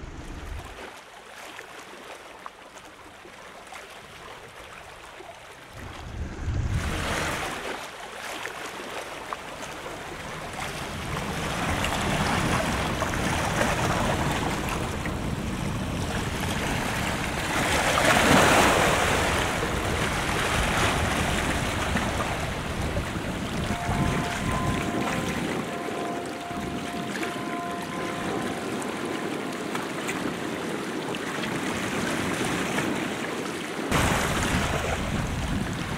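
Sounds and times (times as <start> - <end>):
waves washing against seawall: 0.0 - 35.9
wind buffeting microphone: 5.8 - 7.6, 10.0 - 25.8, 29.5 - 35.9.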